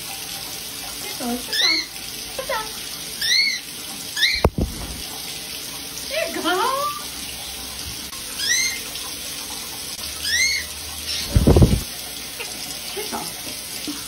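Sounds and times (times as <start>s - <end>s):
shower spray running: 0.0s - 14.0s
cockatiel chirping: 3.2s - 3.6s, 4.2s - 4.5s, 8.4s - 8.8s, 10.2s - 11.3s.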